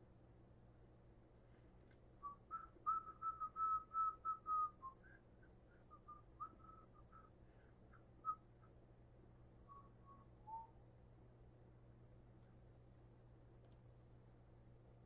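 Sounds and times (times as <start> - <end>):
person whistling a tune: 2.2 - 7.3, 9.7 - 10.7.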